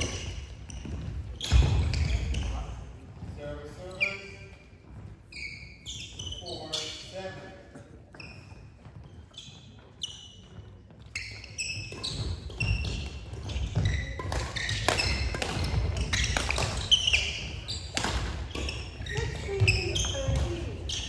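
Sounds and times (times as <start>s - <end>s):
rackets hitting shuttlecock: 0.0s - 2.2s, 11.3s - 21.0s
shoes squeaking on court: 0.0s - 21.0s.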